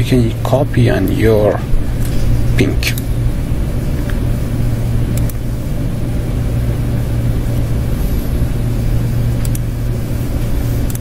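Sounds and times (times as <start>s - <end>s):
low background hum: 0.0s - 11.0s
faint mouse clicks: 9.4s - 9.6s.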